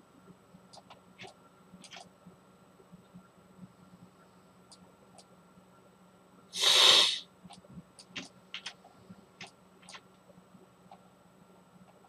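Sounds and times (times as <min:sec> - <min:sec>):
computer mouse clicks: 0:00.7 - 0:02.1, 0:07.5 - 0:08.8, 0:09.4 - 0:10.0
person sniffing: 0:06.6 - 0:07.2.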